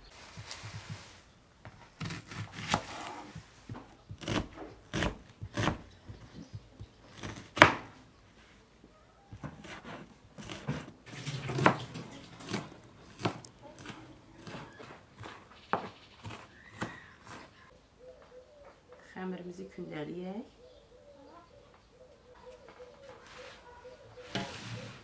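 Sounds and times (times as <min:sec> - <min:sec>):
knife chopping on wooden board: 0:01.7 - 0:07.9, 0:09.4 - 0:17.5.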